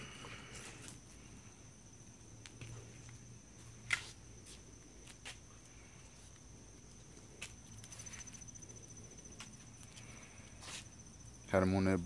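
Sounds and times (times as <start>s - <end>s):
high-pitched insect trill: 0.0s - 12.0s.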